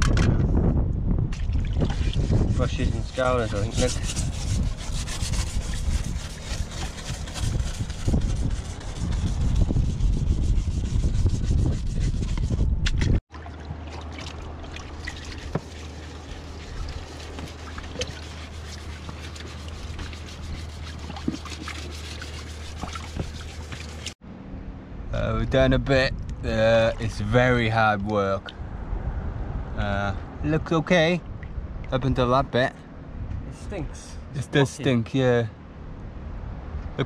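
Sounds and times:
brush scrubbing boat hull: 1.8 - 12.7, 14.2 - 24.2
low hum: 21.9 - 30.4.

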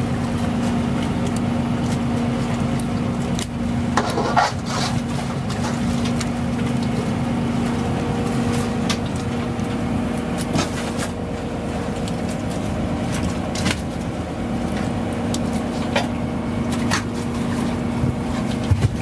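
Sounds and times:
boat machinery humming: 0.0 - 19.0.

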